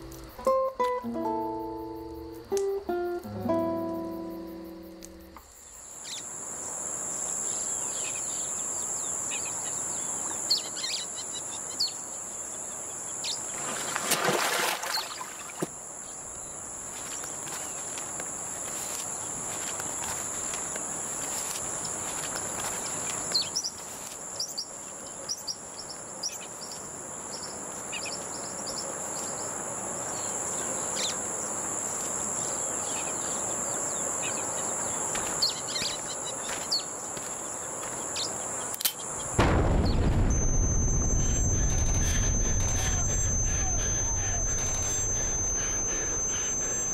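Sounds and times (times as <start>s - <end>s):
high-pitched insect drone: 0.0s - 13.5s, 15.6s - 24.7s, 27.4s - 38.4s, 39.1s - 46.9s
rush of noise: 39.4s - 46.9s
bird chirps: 39.6s - 46.9s.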